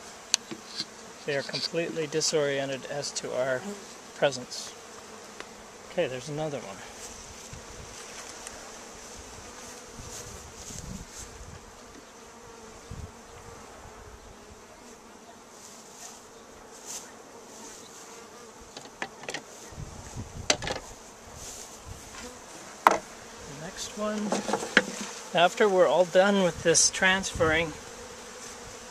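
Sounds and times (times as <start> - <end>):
honey bees buzzing: 0.0 - 28.9
sharp knocks: 22.8 - 23.0.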